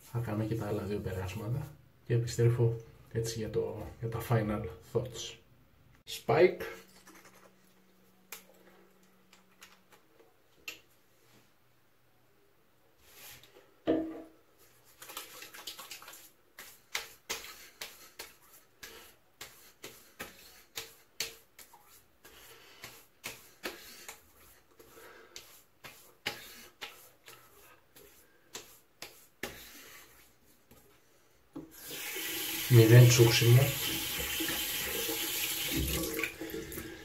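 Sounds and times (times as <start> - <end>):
hands patting wet face: 14.7 - 29.8.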